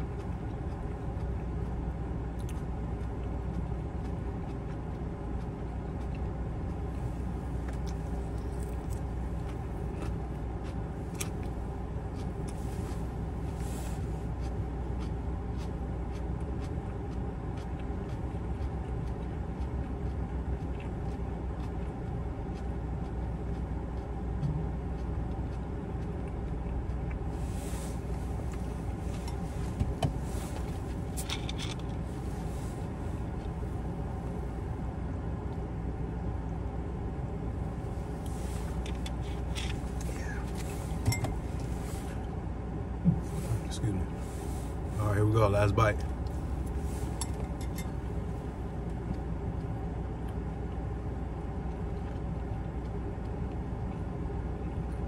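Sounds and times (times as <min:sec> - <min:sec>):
low hum inside car: 0:00.0 - 0:55.0.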